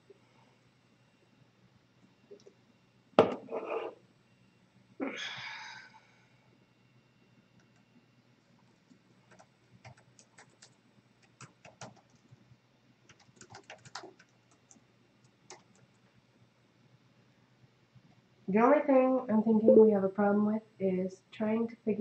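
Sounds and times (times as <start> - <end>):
typing on computer keyboard: 8.9 - 12.4, 13.0 - 16.0.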